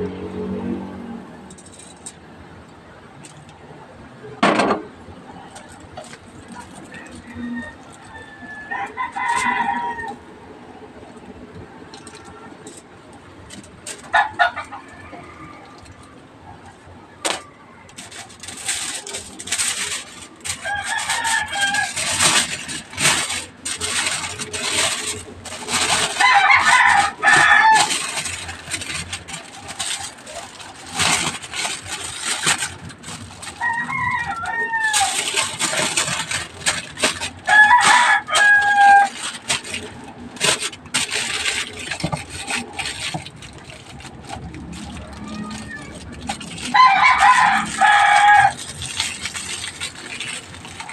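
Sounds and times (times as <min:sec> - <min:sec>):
aluminium foil crinkling: 0:01.5 - 0:02.3, 0:05.0 - 0:10.2, 0:11.0 - 0:50.9
rooster crowing: 0:07.0 - 0:10.2, 0:20.5 - 0:22.6, 0:26.0 - 0:28.3, 0:33.5 - 0:35.2, 0:37.4 - 0:39.2, 0:46.6 - 0:48.7.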